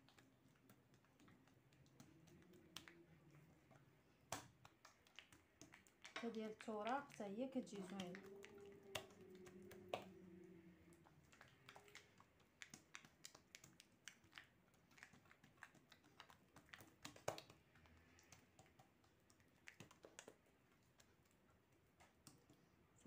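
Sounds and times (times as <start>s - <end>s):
hands patting dough on countertop: 0.0s - 22.7s.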